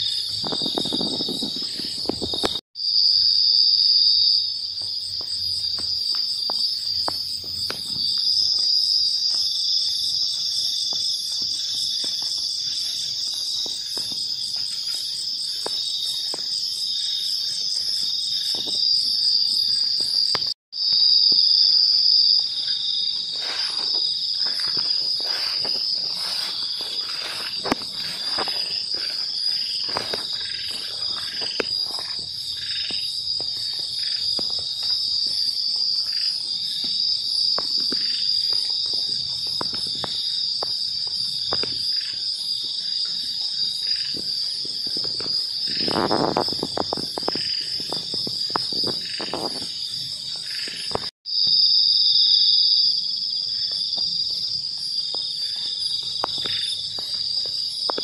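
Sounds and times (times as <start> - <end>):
crickets and insects trilling: 0.0 - 58.0
crackles and rustles: 0.2 - 2.6, 23.1 - 35.6.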